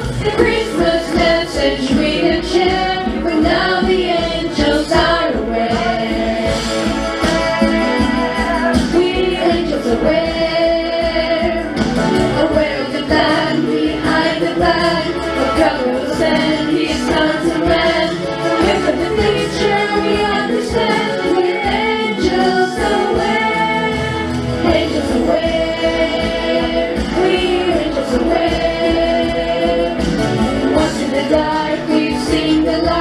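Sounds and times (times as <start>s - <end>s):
instrumental accompaniment: 0.0s - 33.0s
youth choir singing: 0.0s - 33.0s.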